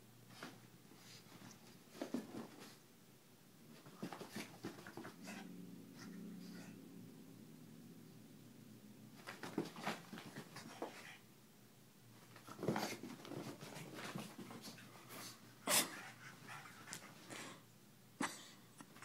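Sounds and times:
dog scuffling on carpet: 0:00.3 - 0:02.8, 0:03.7 - 0:05.4, 0:09.2 - 0:11.2, 0:12.2 - 0:17.3.

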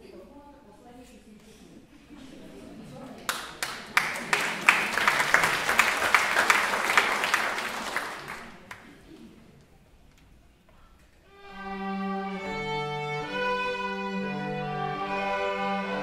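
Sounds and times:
audience applause: 0:03.3 - 0:09.2
violin ensemble playing: 0:11.3 - 0:16.0.

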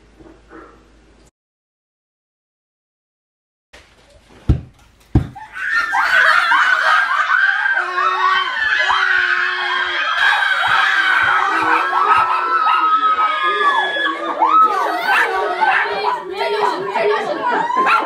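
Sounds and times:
high voices shrieking and laughing: 0:05.4 - 0:18.0.

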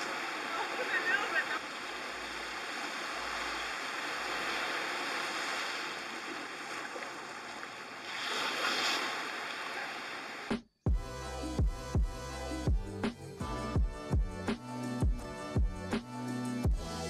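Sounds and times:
small waves on sandy shore: 0:00.0 - 0:10.6.

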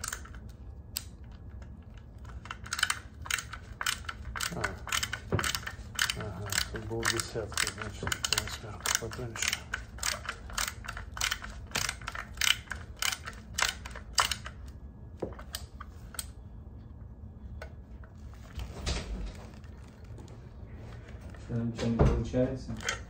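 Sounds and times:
ratcheting screwdriver clicking: 0:02.2 - 0:14.6, 0:22.8 - 0:23.0.

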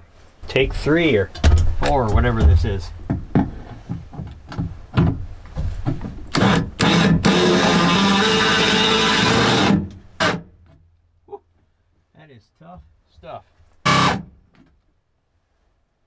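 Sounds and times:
cordless drill boring into steel: 0:06.4 - 0:10.4, 0:13.9 - 0:14.2.

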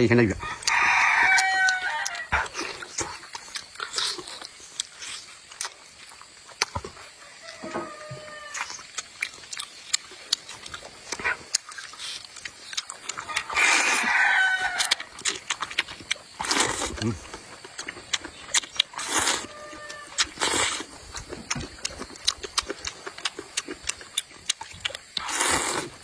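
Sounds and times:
chewing and wet smacks: 0:00.0 - 0:07.6, 0:08.2 - 0:26.0
rooster crowing: 0:00.4 - 0:02.4, 0:07.2 - 0:08.8, 0:13.3 - 0:15.2, 0:19.4 - 0:20.2
slurping noodles: 0:11.1 - 0:14.1, 0:16.3 - 0:17.2, 0:18.5 - 0:21.0, 0:25.2 - 0:26.0.

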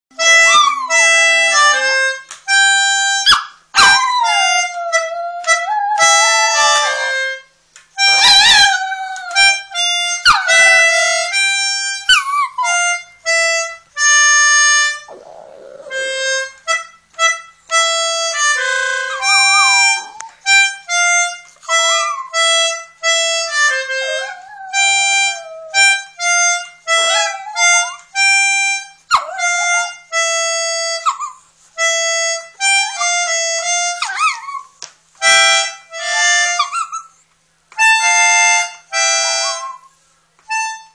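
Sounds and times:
slow melody of held notes: 0:00.2 - 0:31.2, 0:31.8 - 0:34.6, 0:35.2 - 0:36.8
dog howling: 0:03.8 - 0:07.3, 0:08.2 - 0:11.3, 0:15.0 - 0:16.2, 0:18.4 - 0:20.4, 0:23.8 - 0:25.9, 0:27.0 - 0:28.0, 0:29.2 - 0:30.0.

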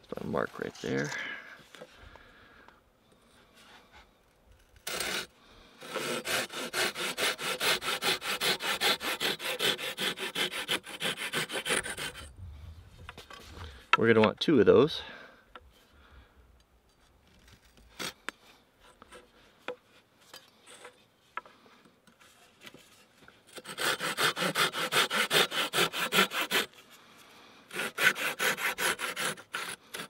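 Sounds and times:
pruning saw cutting wood: 0:04.8 - 0:12.3, 0:23.5 - 0:26.8, 0:27.7 - 0:30.0.

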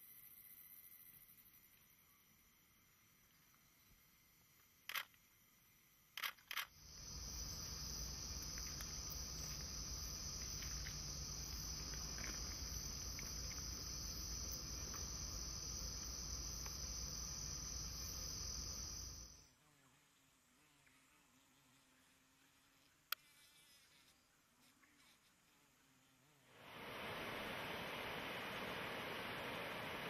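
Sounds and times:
insects droning: 0:00.0 - 0:30.0.

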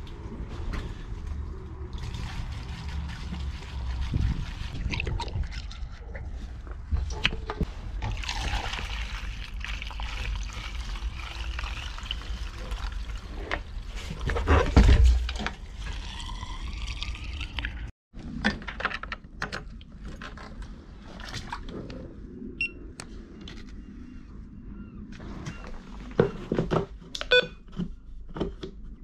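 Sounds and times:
liquid pouring through funnel: 0:08.0 - 0:13.9, 0:15.5 - 0:17.9.

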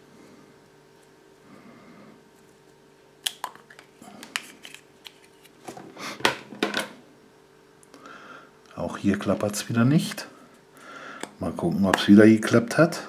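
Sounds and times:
chocolate egg cracking: 0:03.2 - 0:04.8.

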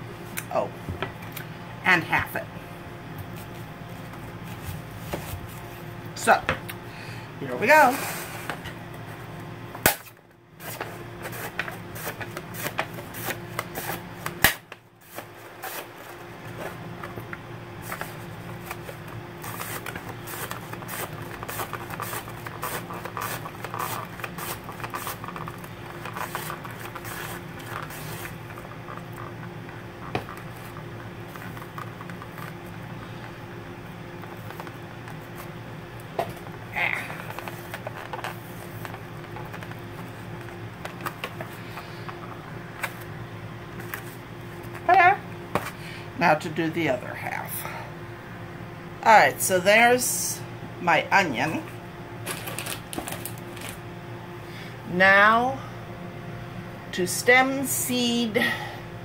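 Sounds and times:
steady low hum: 0:00.0 - 0:59.0
mandoline slicer cutting onion: 0:09.8 - 0:16.2, 0:17.8 - 0:33.3.

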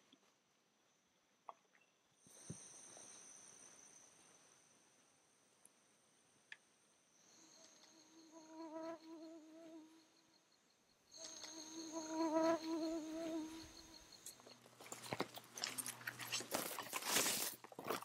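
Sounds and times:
high insect trill: 0:02.3 - 0:05.4, 0:07.1 - 0:17.6
flying insect buzzing: 0:07.3 - 0:10.2, 0:11.1 - 0:14.3
footsteps on dry pine needles: 0:14.8 - 0:18.0.

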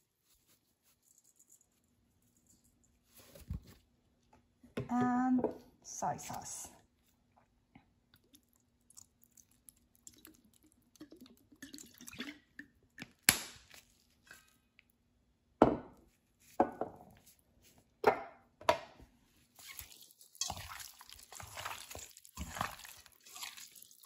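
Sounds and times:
ribs mixed by hand in sauce: 0:19.5 - 0:24.0.

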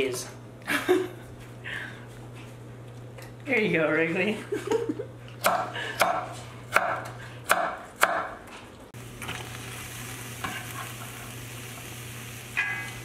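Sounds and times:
vegetables sizzling in a pot: 0:09.0 - 0:13.0.

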